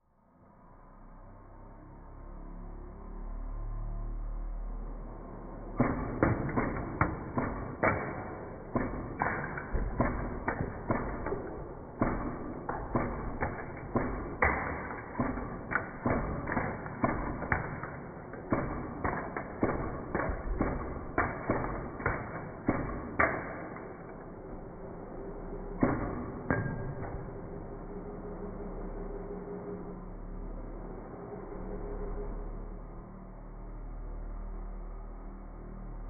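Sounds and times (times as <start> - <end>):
toy projectiles hitting plastic: 5.8 - 24.3.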